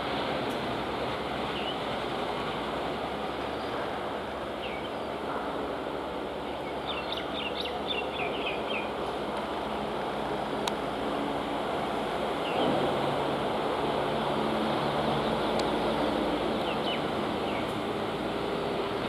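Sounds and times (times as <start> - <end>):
train approaching rushing: 0.0 - 19.0
birds chirping: 4.6 - 5.4, 6.4 - 9.0, 12.4 - 12.8, 14.9 - 17.8.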